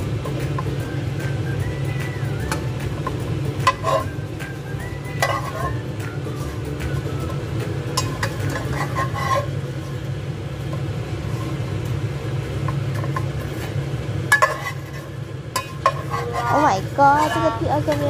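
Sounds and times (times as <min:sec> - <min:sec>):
steady low hum: 0:00.0 - 0:18.0
metal spatula scraping frying pan: 0:03.0 - 0:04.2, 0:04.9 - 0:11.9, 0:12.6 - 0:18.0.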